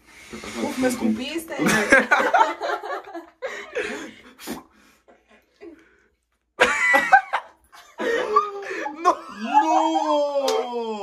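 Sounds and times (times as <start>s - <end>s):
people laughing and exclaiming: 8.0s - 11.0s.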